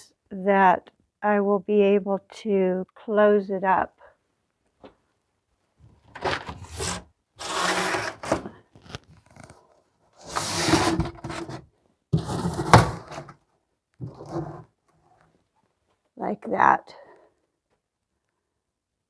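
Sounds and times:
cardboard scraping and rubbing: 6.1s - 9.5s, 10.2s - 13.4s, 14.0s - 14.8s.

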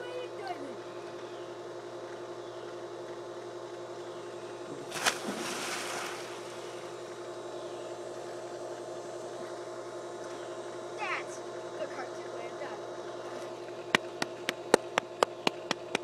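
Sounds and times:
steady mechanical hum: 0.0s - 16.0s
splash into pool: 4.9s - 6.8s.

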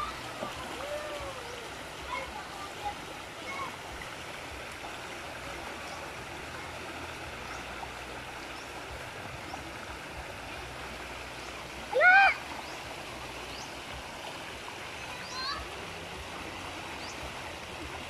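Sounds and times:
creek water flowing: 0.0s - 18.0s.

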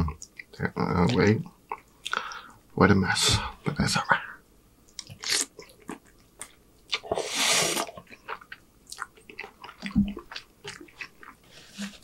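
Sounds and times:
chewing with wet mouth clicks: 4.9s - 7.0s, 7.9s - 11.4s
slurping noodles: 7.0s - 8.0s.

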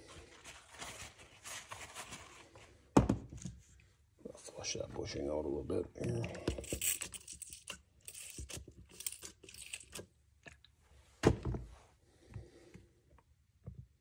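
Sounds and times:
handling rustling and crinkling: 0.0s - 2.9s.

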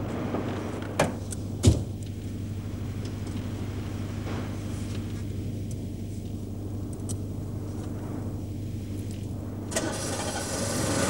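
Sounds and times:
car engine humming: 9.4s - 11.0s
loud engine starting up: 9.7s - 11.0s.

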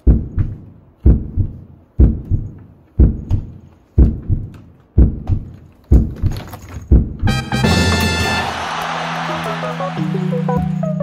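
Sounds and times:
heartbeat double thump: 0.0s - 6.3s, 6.9s - 7.3s.

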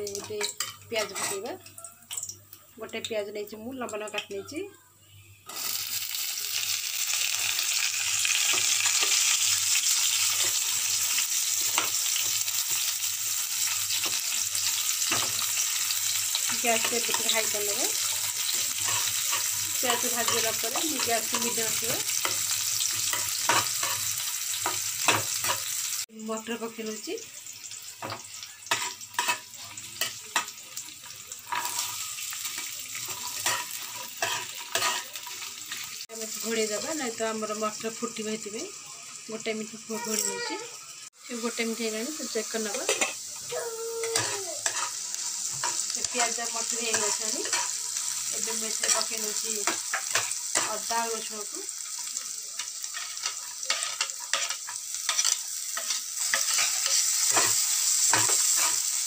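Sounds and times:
onions sizzling in hot oil: 0.0s - 59.0s
metal spatula scraping pan: 0.4s - 1.5s, 31.5s - 35.9s, 44.1s - 48.2s, 52.9s - 58.8s
spatula scraping a pan: 13.6s - 25.8s, 31.5s - 36.0s, 44.1s - 50.8s, 52.9s - 58.9s.

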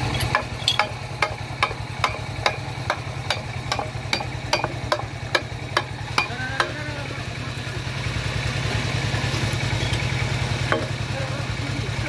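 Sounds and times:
hammer striking steel pipe: 0.0s - 6.8s, 10.7s - 11.0s
steady low hum: 0.0s - 12.0s.

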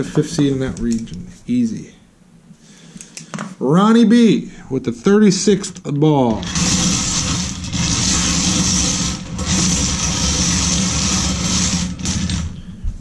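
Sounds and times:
wooden balls rattling in wire cage: 6.3s - 12.6s.

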